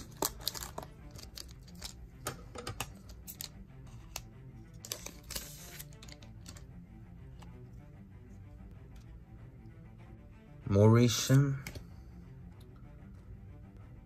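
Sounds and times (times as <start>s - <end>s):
cards rustling: 0.0s - 6.7s
trading cards clicking and snapping: 0.0s - 6.7s
faint background music: 0.0s - 14.0s.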